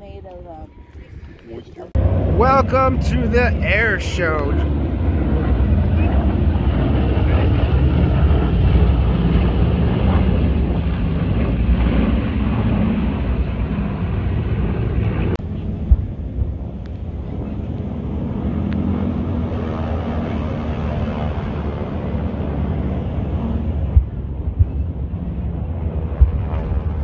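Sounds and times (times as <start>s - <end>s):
wind buffeting microphone: 0.0s - 19.8s, 21.3s - 27.0s
loud low rumble: 1.9s - 19.2s.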